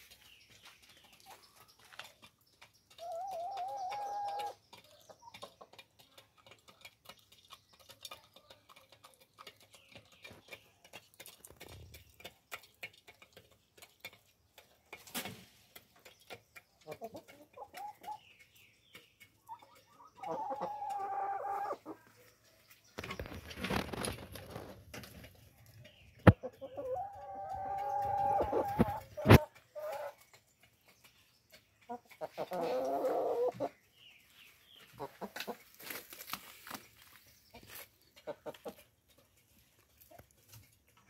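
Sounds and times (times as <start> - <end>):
chickens calling: 0.0 - 13.0, 13.8 - 41.0.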